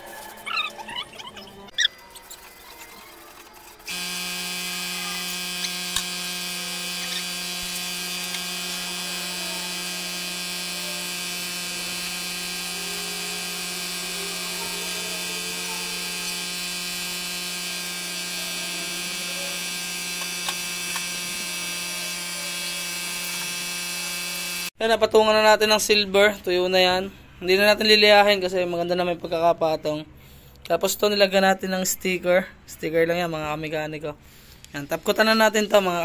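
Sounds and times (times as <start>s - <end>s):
air compressor motor humming: 3.8s - 24.8s
spray gun hissing: 3.9s - 24.7s.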